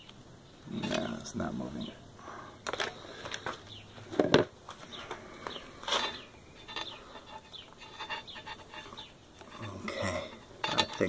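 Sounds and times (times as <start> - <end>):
test probes clicking and rubbing: 5.9 - 9.7.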